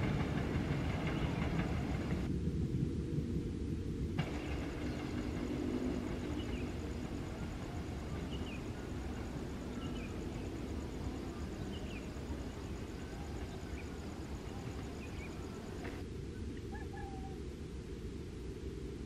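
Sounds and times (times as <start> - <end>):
low engine rumble: 0.0 - 18.0
faint bird chirps: 4.3 - 17.4.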